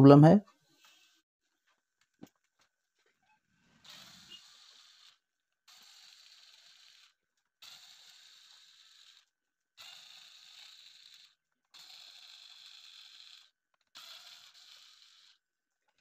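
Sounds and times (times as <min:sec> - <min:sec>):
electric screwdriver whirring: 0:03.8 - 0:15.4.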